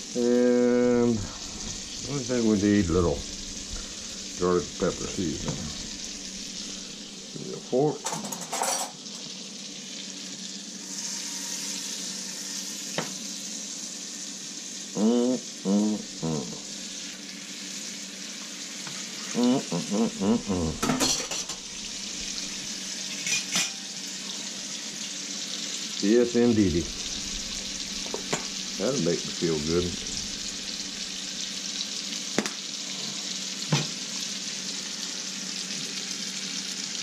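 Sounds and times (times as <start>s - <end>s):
steak sizzling in a skillet: 0.0s - 37.0s
utensils clinking on metal: 8.0s - 9.0s, 20.8s - 21.6s, 23.1s - 23.9s.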